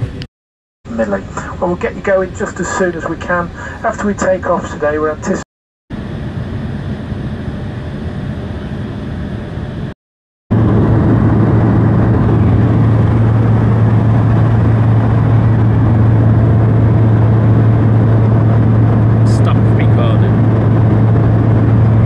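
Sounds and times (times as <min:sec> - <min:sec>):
strong low hum: 0:05.9 - 0:22.0.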